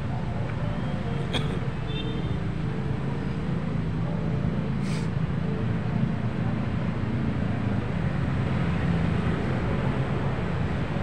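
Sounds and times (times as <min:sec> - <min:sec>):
road traffic rumble: 0:00.0 - 0:11.0
brief hiss: 0:04.8 - 0:05.1.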